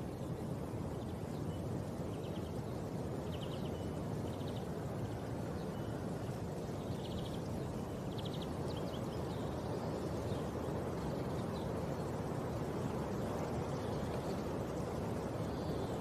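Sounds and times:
bird chirps: 1.0 - 4.8.

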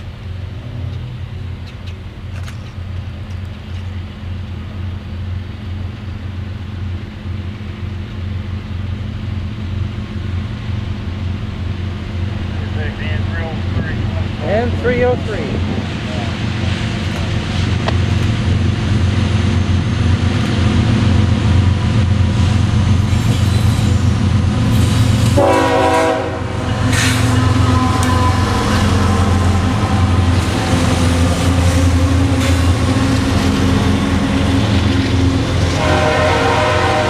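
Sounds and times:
locomotive engine rumble: 0.0 - 37.0
train cars rolling with ringing tone: 0.0 - 37.0
train horn: 25.3 - 30.4, 35.6 - 37.0.

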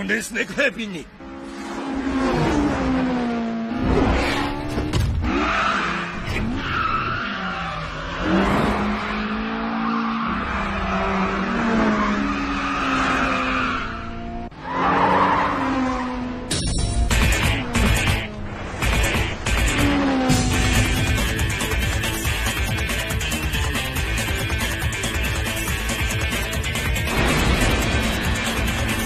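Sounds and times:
racing car engines revving: 1.0 - 29.0.

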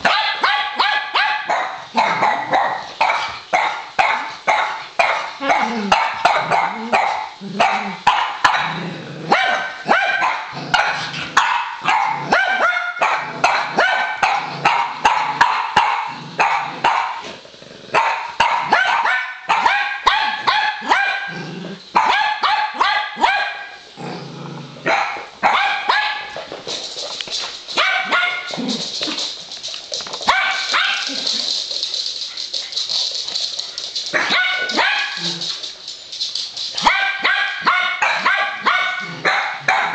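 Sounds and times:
dogs barking playfully: 0.0 - 23.8, 24.8 - 39.9.

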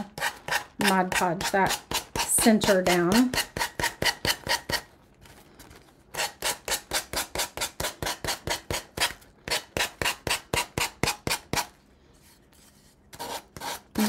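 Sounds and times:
sandpaper rubbing: 11.5 - 14.0.

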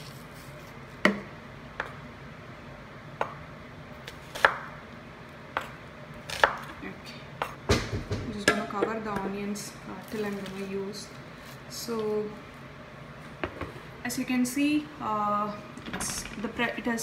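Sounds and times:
vent fan hum: 0.0 - 17.0
knife chopping on wooden board: 5.6 - 6.7.

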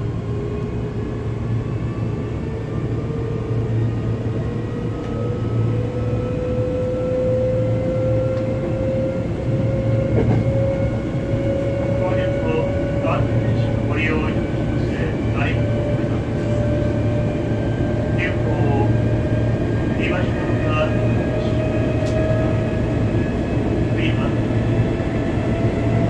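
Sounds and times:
train wheels rumbling on track: 0.0 - 26.0
train motor whine: 8.0 - 12.9.

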